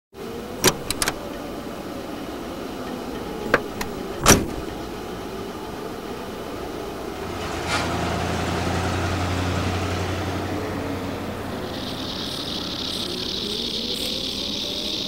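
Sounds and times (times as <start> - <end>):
van door latch clicking: 0.6 - 1.2, 3.4 - 5.0
van door slamming shut: 0.6 - 1.2, 3.5 - 4.9.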